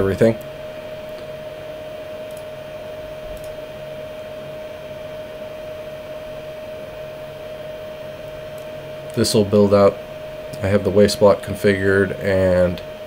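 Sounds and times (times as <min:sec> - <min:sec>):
faint low hum: 0:00.0 - 0:13.0
mid-pitched whine: 0:00.0 - 0:13.0
faint clicks: 0:03.3 - 0:03.6.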